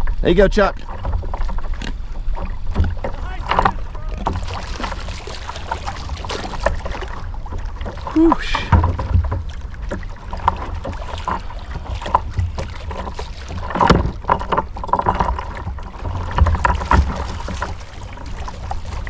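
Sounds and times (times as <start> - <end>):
water slapping against hull: 0.0 - 19.0
fishing gear knocks and clicks: 8.1 - 17.8.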